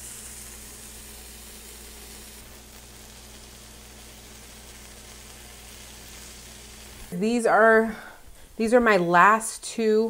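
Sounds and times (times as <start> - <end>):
cheese sizzling on griddle: 0.0 - 8.5
steady low hum: 0.0 - 9.8.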